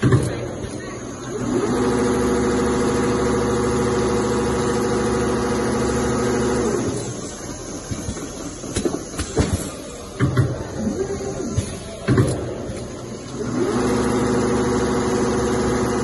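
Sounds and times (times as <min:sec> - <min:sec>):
sewing machine motor whir: 0:00.7 - 0:08.5, 0:13.2 - 0:16.0.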